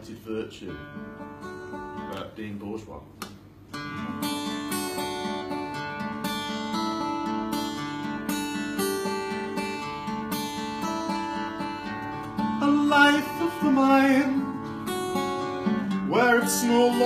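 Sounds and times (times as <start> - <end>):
acoustic guitar strumming: 0.0 - 2.4, 3.5 - 17.0.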